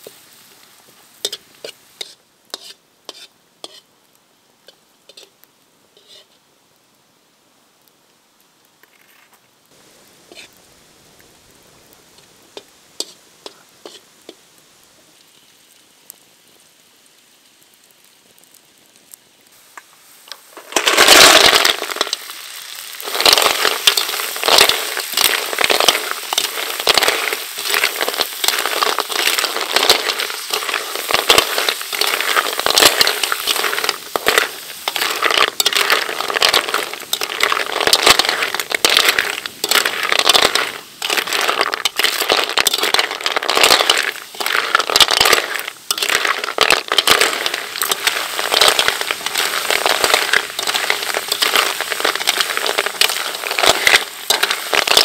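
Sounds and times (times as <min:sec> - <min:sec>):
food sizzling: 0:00.0 - 0:04.0, 0:04.6 - 0:06.4, 0:09.7 - 0:55.0
metal ladle scraping wok: 0:01.2 - 0:03.8, 0:13.0 - 0:14.0, 0:20.5 - 0:22.3, 0:23.0 - 0:55.0.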